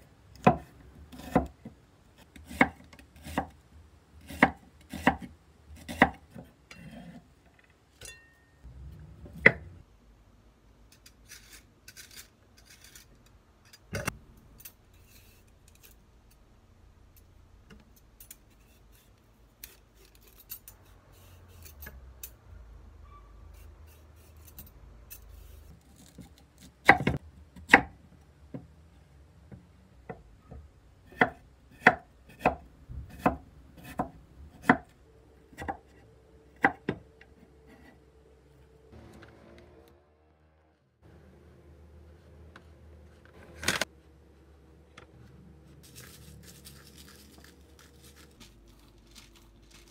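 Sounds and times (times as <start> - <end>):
peeler scraping vegetable skin: 11.2 - 13.2.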